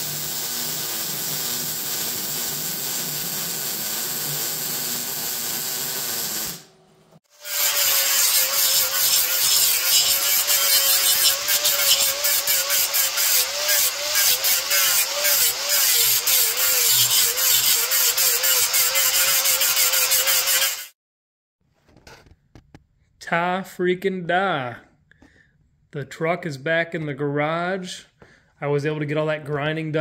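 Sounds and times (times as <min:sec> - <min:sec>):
angle grinder grinding steel: 0:00.0 - 0:06.6, 0:07.3 - 0:20.9
welding arc hissing: 0:00.0 - 0:06.7, 0:07.3 - 0:20.9.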